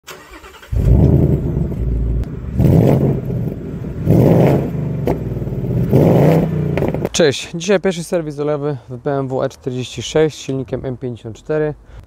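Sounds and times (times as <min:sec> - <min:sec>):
car engine revving: 0:00.2 - 0:07.1.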